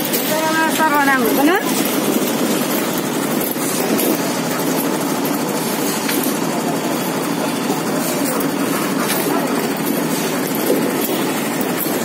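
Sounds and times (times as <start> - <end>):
construction machinery engine: 0.0 - 12.0.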